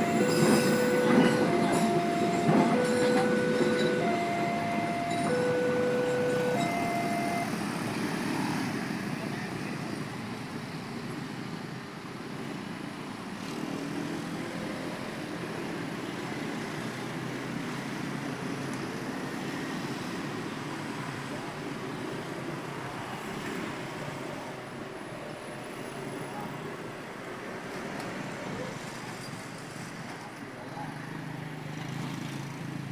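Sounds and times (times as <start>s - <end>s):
electronic warning tone: 0.0s - 7.6s
road traffic engines and tyres: 0.0s - 32.9s.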